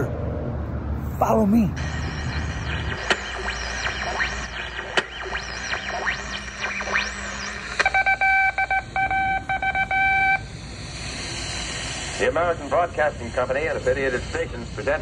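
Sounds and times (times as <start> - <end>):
morse code beeps: 1.8 - 10.5
radio tuning whistles: 1.8 - 15.0.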